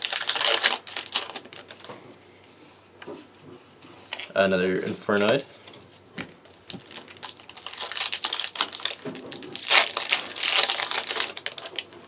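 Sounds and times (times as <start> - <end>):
foil wrapper crinkling: 0.0 - 1.9, 6.5 - 12.0.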